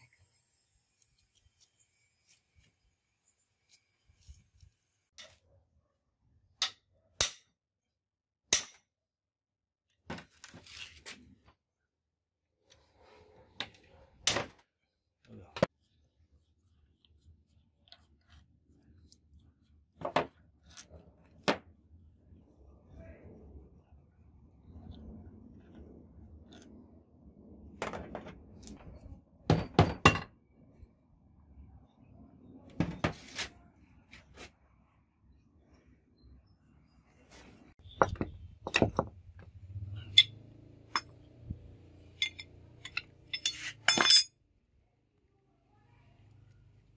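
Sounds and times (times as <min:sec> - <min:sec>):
hammer striking steel bar: 0:06.6 - 0:07.6, 0:08.5 - 0:08.9
hammer striking metal gear: 0:42.2 - 0:44.3.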